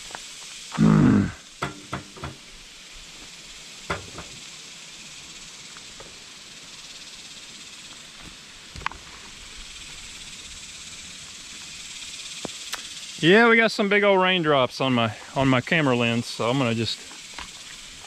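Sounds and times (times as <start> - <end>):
rain falling through trees: 0.0 - 18.0
sharp knocks: 1.6 - 2.4.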